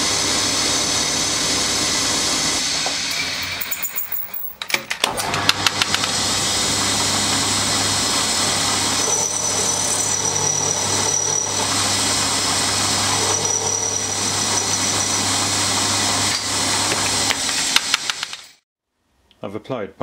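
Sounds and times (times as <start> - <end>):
milling machine cutting steel: 5.1 - 18.6.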